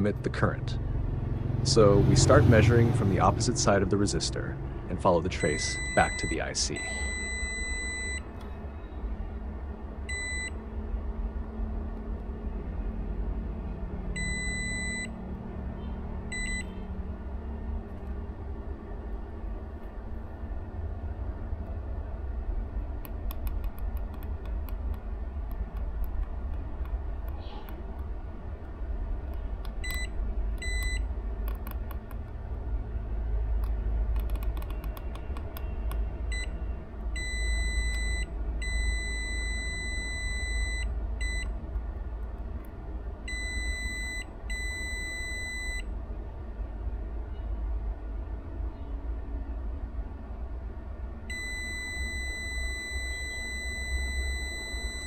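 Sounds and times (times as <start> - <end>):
multimeter beeping: 5.4 - 8.3, 10.1 - 10.6, 14.2 - 15.1, 16.3 - 16.8, 29.8 - 31.0, 37.2 - 41.5, 43.3 - 45.8, 51.3 - 55.0.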